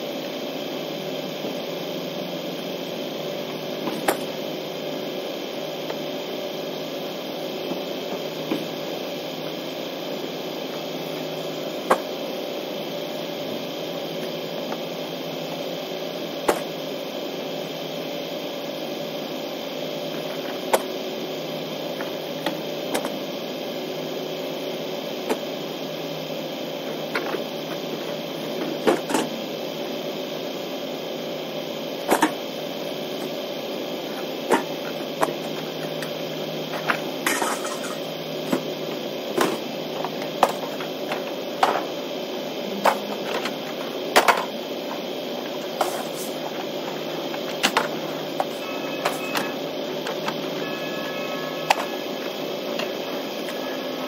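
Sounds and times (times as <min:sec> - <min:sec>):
steady vehicle cab hum: 0:06.9 - 0:17.8, 0:31.5 - 0:54.0.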